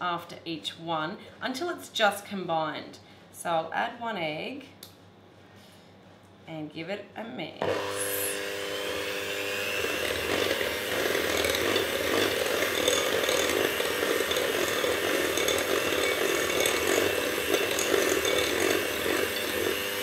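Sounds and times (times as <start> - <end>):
electric hand mixer churning batter: 7.6 - 20.0.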